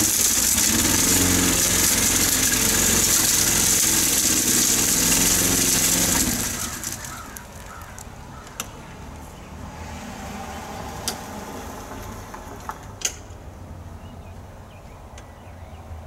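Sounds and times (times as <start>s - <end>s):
distant small engine running: 0.0s - 8.0s.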